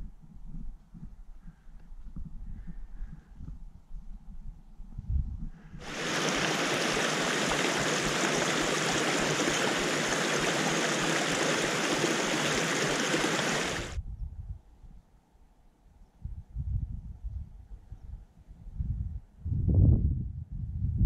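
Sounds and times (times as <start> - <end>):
stream rushing over rocks: 5.8 - 14.0.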